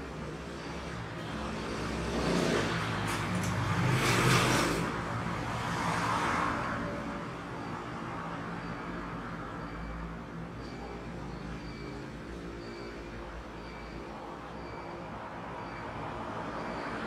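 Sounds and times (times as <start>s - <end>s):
vehicle passing by: 1.3s - 6.6s.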